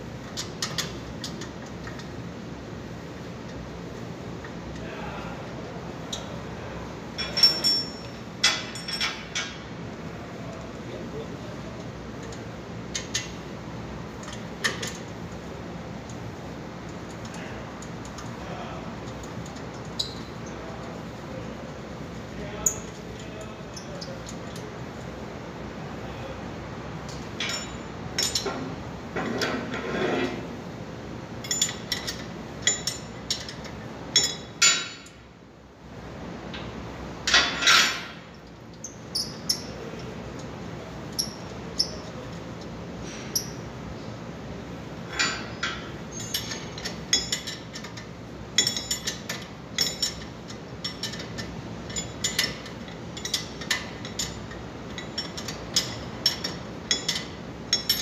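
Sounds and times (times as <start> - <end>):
metal tools clinking: 7.2 - 9.5, 27.4 - 28.6, 45.1 - 48.0, 48.6 - 58.0.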